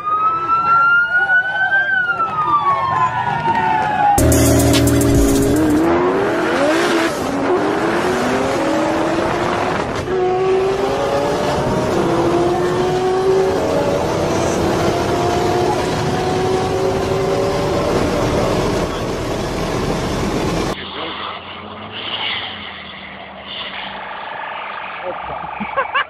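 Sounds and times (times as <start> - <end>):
car engine accelerating: 4.2 - 25.8
wind and road noise: 5.2 - 26.0.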